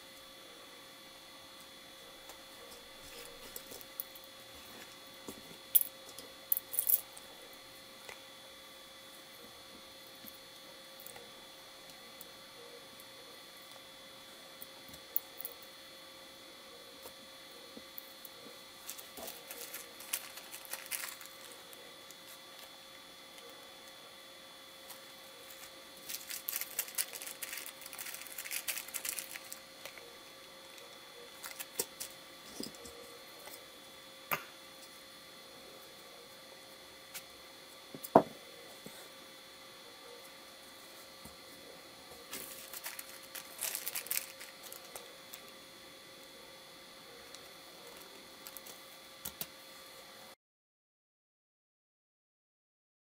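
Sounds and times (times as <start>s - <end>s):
electrical hum: 0.0s - 50.4s
plastic bag crinkling: 18.8s - 21.8s, 25.4s - 30.0s, 31.3s - 32.2s, 42.3s - 45.5s.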